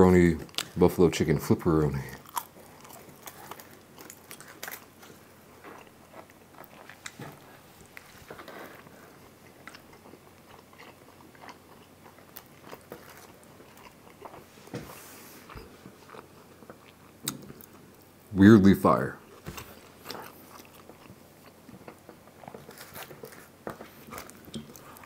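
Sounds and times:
person chewing food: 0:02.1 - 0:18.1, 0:19.2 - 0:25.0.

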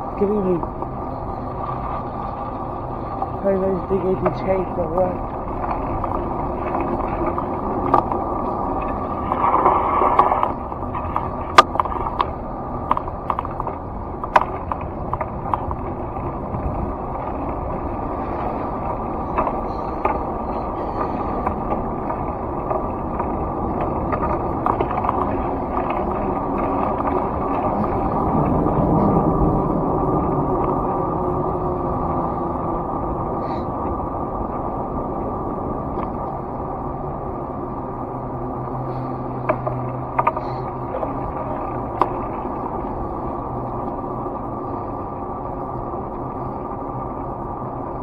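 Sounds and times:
low rumble: 0:00.0 - 0:48.0
road and engine noise in car: 0:00.0 - 0:48.0
sharp clicks and knocks: 0:05.6 - 0:17.7, 0:19.3 - 0:28.6, 0:39.3 - 0:42.5.

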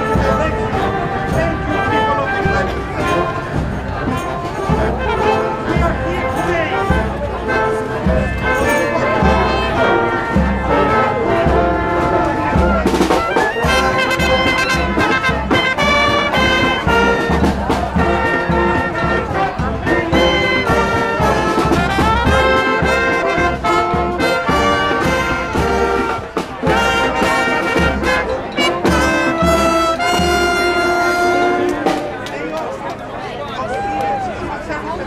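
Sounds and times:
brass band playing: 0:00.0 - 0:32.3.

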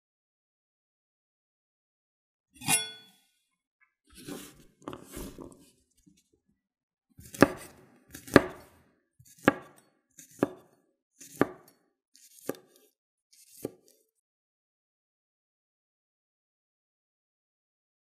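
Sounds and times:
knife cutting on wooden board: 0:02.6 - 0:03.1, 0:04.2 - 0:05.7, 0:07.2 - 0:14.0.

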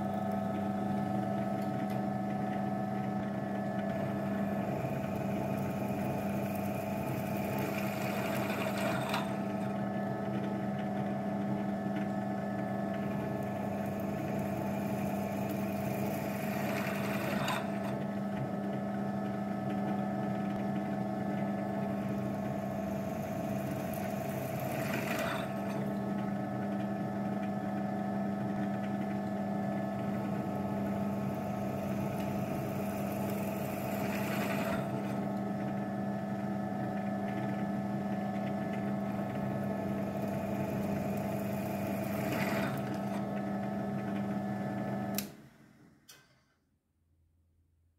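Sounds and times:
electric motor humming: 0:03.5 - 0:10.1, 0:12.9 - 0:18.1, 0:21.4 - 0:26.4, 0:29.6 - 0:35.8, 0:38.0 - 0:43.7.

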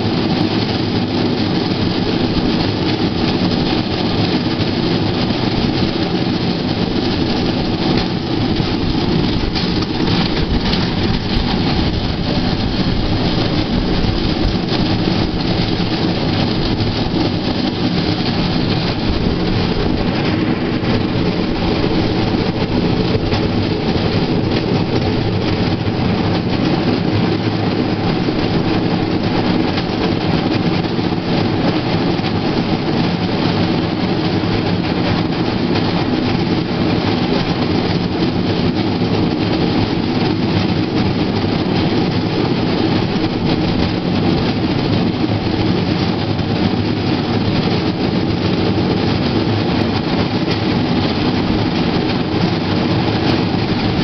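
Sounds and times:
steel wheels rumbling on rails: 0:00.0 - 0:54.0.

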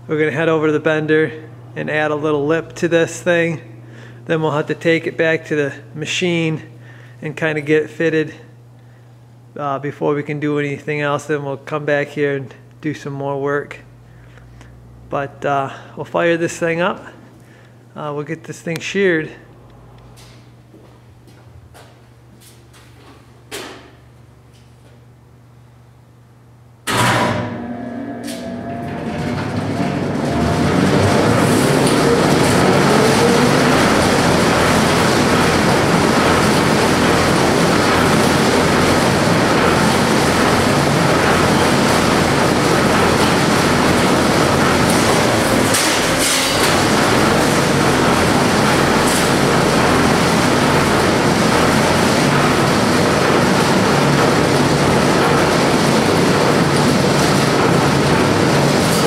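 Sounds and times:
machine motor humming and clattering: 0:26.8 - 0:59.0.

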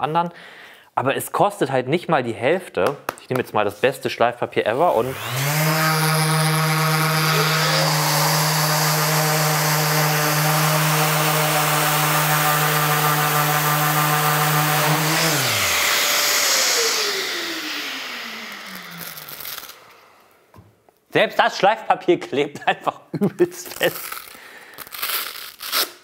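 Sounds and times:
orbital sander motor hum: 0:04.8 - 0:20.4
high whine sliding down: 0:12.4 - 0:20.4.

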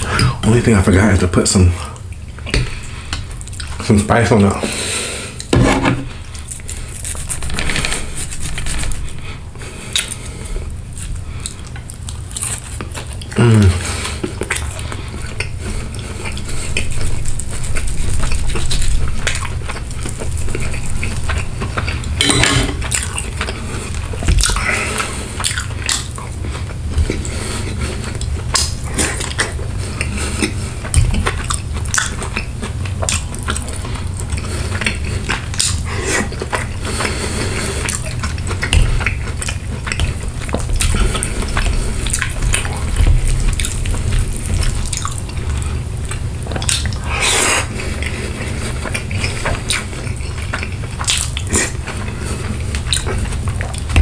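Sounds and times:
chewing food: 0:01.9 - 0:04.0, 0:06.1 - 0:54.0
cutlery scraping a plate: 0:22.2 - 0:22.8.

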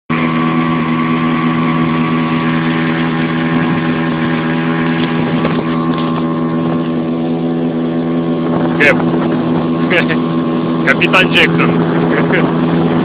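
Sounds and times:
motorboat engine droning: 0:00.1 - 0:13.0.

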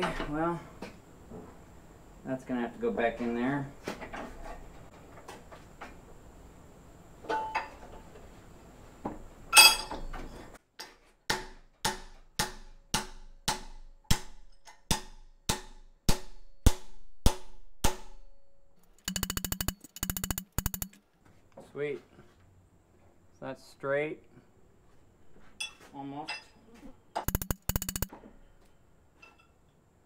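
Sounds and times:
hammer striking metal bracket: 0:11.9 - 0:18.3, 0:19.0 - 0:21.0
fast metallic rattle: 0:18.8 - 0:21.0, 0:27.3 - 0:28.1.

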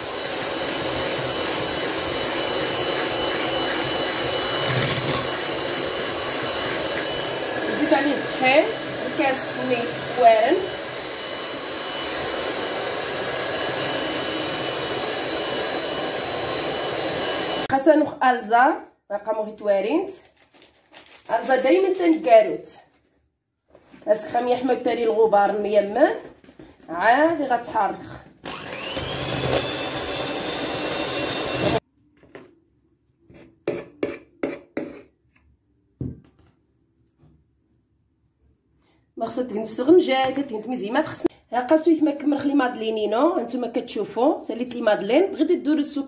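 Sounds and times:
electric hand mixer whirring: 0:00.0 - 0:17.7, 0:27.3 - 0:31.8.

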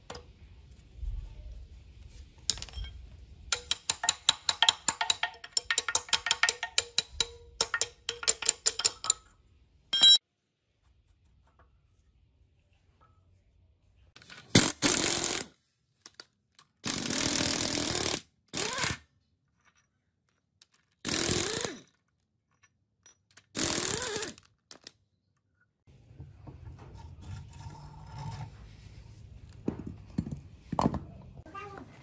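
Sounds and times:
power tool spinning nuts off: 0:21.0 - 0:21.9, 0:23.5 - 0:24.4.

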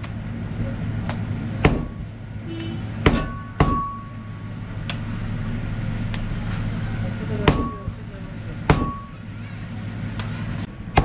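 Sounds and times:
cleaver chopping meat on block: 0:01.1 - 0:01.9.

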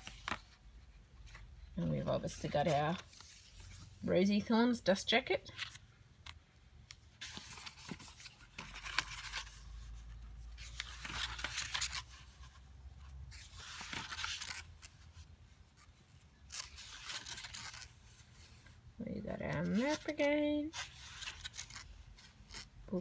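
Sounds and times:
book pages turning: 0:00.0 - 0:04.0, 0:05.5 - 0:18.8, 0:19.4 - 0:22.7.

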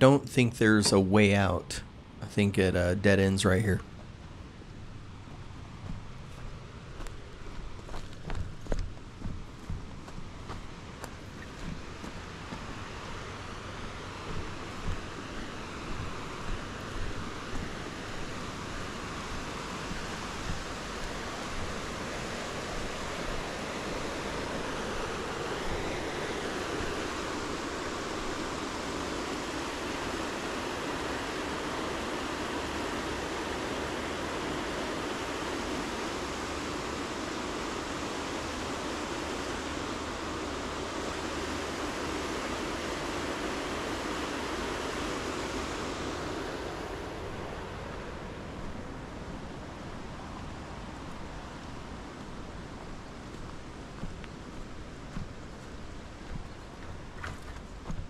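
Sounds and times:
footsteps on dirt path: 0:05.3 - 0:12.9, 0:14.2 - 0:18.8, 0:50.4 - 0:58.0.

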